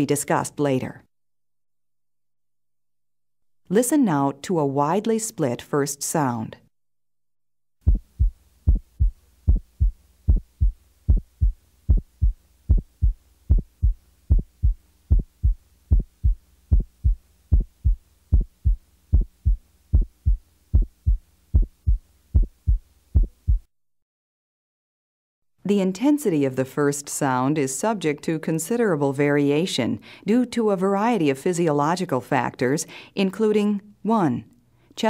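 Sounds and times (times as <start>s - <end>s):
faint steady hum: 7.8s - 23.7s
heartbeat through stethoscope: 7.8s - 23.7s.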